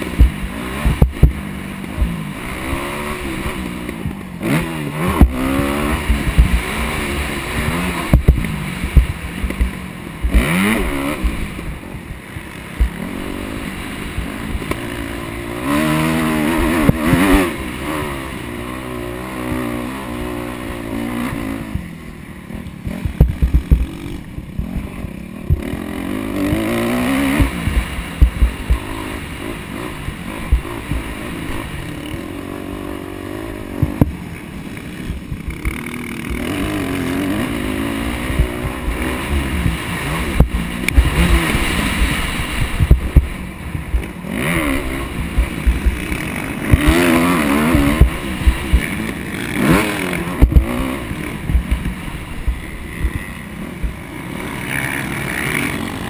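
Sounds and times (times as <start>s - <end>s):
dirt bike engine revving: 0.0s - 56.0s
helmet camera thumps and buffeting: 0.1s - 2.2s, 6.1s - 6.6s, 7.6s - 10.4s, 22.6s - 25.7s, 27.4s - 28.9s, 30.0s - 32.3s, 38.3s - 44.2s, 44.8s - 47.1s, 47.7s - 49.2s, 50.2s - 54.0s.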